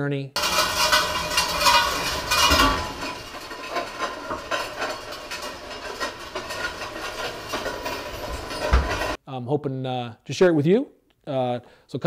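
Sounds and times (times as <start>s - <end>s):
loose metal rattling and clanking: 0.4s - 9.2s.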